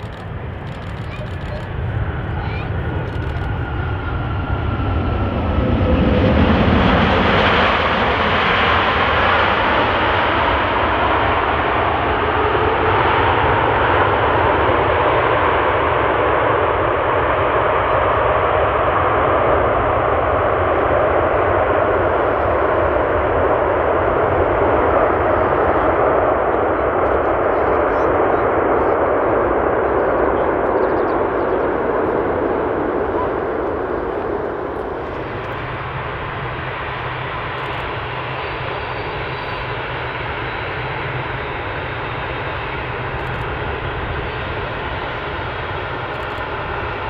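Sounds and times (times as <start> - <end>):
jet engines roaring: 0.0 - 47.0.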